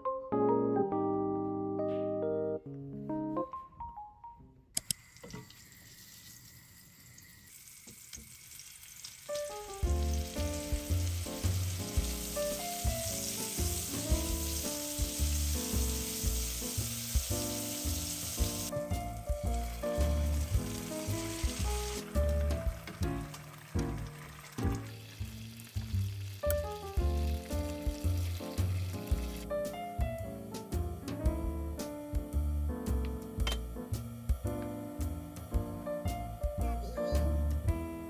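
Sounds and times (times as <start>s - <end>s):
soft background music: 0.0s - 4.7s, 9.3s - 38.0s
patties sizzling in frying pan: 5.3s - 29.8s.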